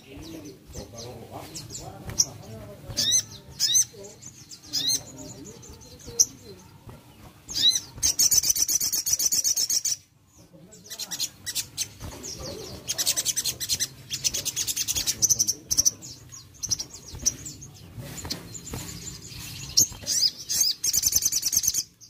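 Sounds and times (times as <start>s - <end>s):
bird singing high trills: 0.0s - 6.7s, 7.5s - 10.1s, 10.8s - 22.0s.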